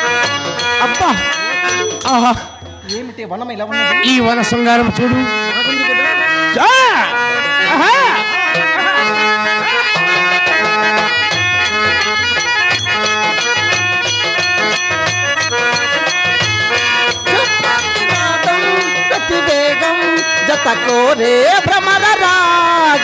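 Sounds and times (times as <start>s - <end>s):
drum beat: 0.0s - 3.1s, 11.3s - 23.0s
sustained folk melody: 0.0s - 23.0s.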